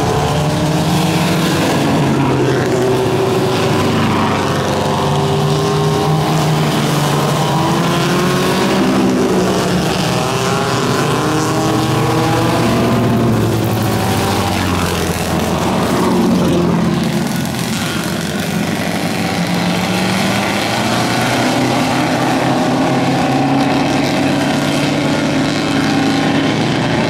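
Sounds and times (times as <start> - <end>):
racing car engines accelerating: 0.0 - 27.0.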